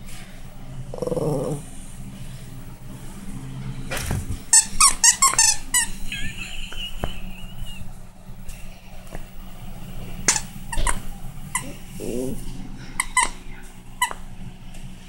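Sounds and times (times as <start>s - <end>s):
dog toy squeaking: 4.5s - 6.0s, 13.0s - 13.4s.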